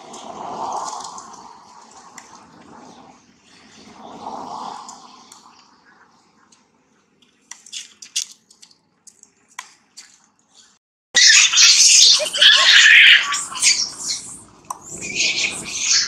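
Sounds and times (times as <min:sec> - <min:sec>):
faint rustles and ticks: 0:00.0 - 0:04.0, 0:04.8 - 0:10.8
macaques screaming: 0:11.2 - 0:16.0.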